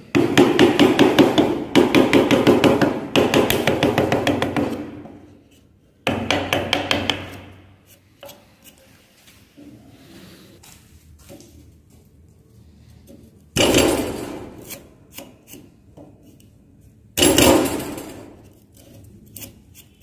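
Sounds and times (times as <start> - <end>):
mallet striking chisel: 0.1 - 5.2, 6.0 - 8.4.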